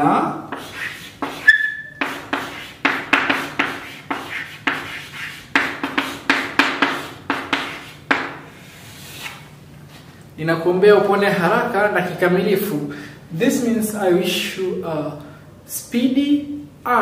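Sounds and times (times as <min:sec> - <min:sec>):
chalk writing on chalkboard: 0:00.5 - 0:09.3.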